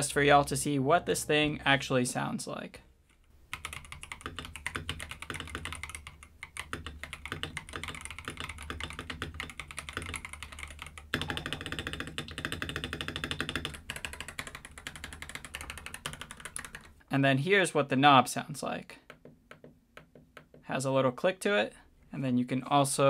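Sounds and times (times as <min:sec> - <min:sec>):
mechanical keyboard typing: 0:03.5 - 0:17.0.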